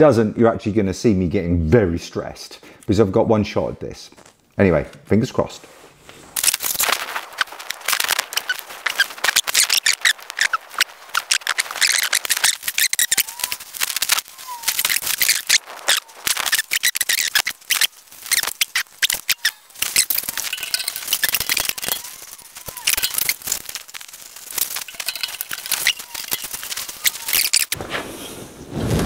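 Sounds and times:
foam strip crackling and clicking: 6.3s - 27.8s.

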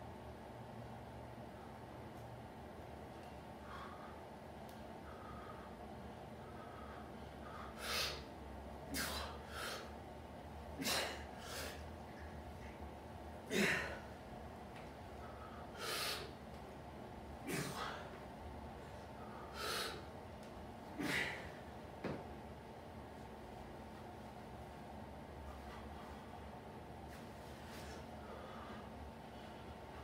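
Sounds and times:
man breathing forcefully and gasping: 5.0s - 8.3s, 8.9s - 10.0s, 10.8s - 12.0s, 15.1s - 16.4s, 17.5s - 18.2s, 19.1s - 20.2s, 20.9s - 21.7s, 28.2s - 29.8s.

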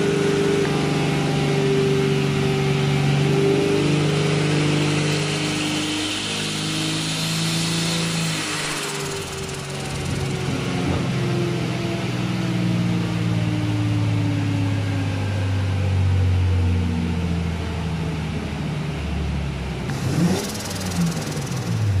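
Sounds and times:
turbo engine on dyno: 0.0s - 22.0s
hiss: 6.2s - 10.5s, 19.9s - 22.0s.

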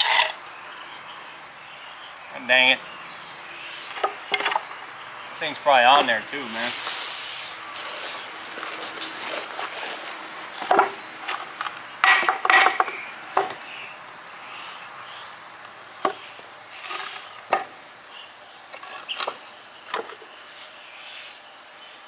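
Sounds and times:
wooden boards knocking: 10.6s - 11.4s, 12.0s - 13.6s.

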